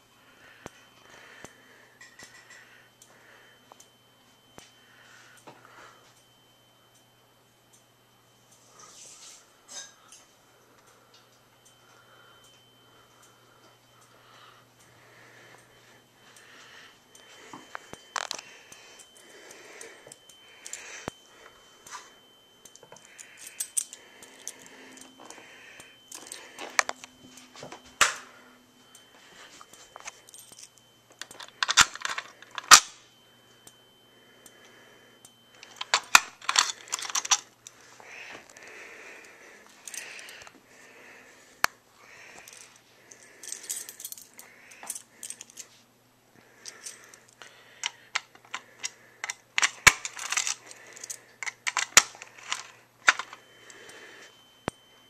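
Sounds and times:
faint high whine: 0:00.0 - 0:55.0
fire alarm pull station clicking: 0:30.0 - 0:33.0, 0:35.6 - 0:37.7, 0:47.8 - 0:53.4.

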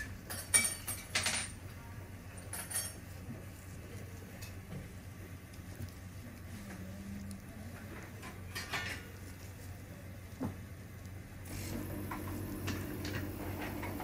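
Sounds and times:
faint low hum: 0:01.3 - 0:14.0.

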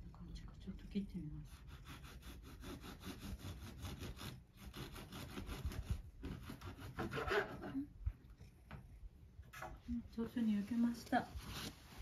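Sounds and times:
knife sawing through bread: 0:01.5 - 0:07.8.

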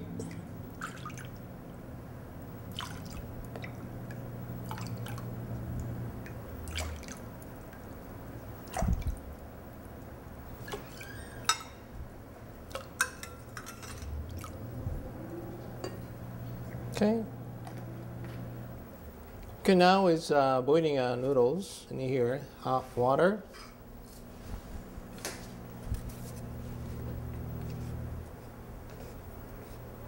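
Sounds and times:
water dripping and splashing: 0:02.7 - 0:09.4.

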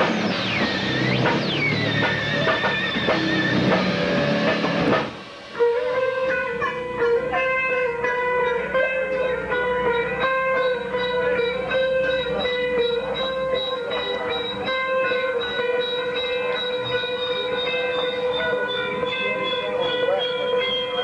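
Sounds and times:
high whistle: 0:00.0 - 0:06.6, 0:11.9 - 0:21.0
clean electric guitar notes: 0:00.0 - 0:21.0
loud distorted noise: 0:00.0 - 0:21.0.

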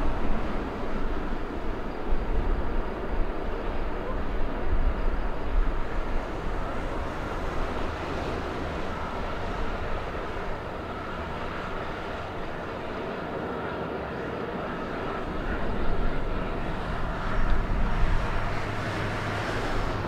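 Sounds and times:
turboprop engines humming: 0:00.0 - 0:20.0
wind on microphone: 0:14.8 - 0:20.0.

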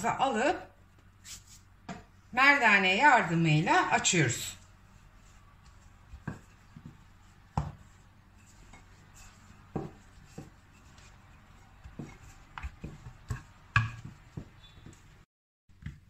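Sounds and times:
rolling pin rolling dough: 0:03.7 - 0:16.0
rolling pin knocking on counter: 0:06.1 - 0:07.9, 0:09.7 - 0:10.6, 0:11.8 - 0:15.1.

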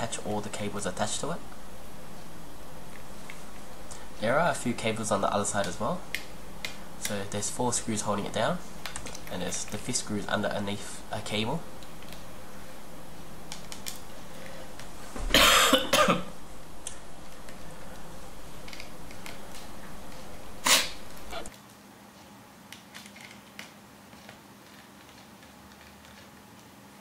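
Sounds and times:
person coughing: 0:15.3 - 0:16.3.

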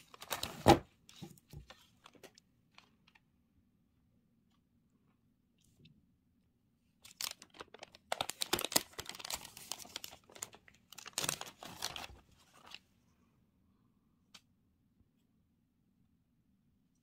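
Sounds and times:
packaging crinkling: 0:00.0 - 0:03.2, 0:07.0 - 0:12.8.

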